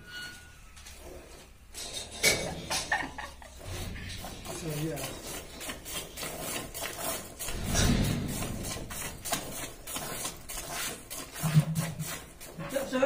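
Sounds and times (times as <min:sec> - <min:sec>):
milk squirting into bucket: 0:03.6 - 0:12.9
low rumble: 0:07.5 - 0:09.0.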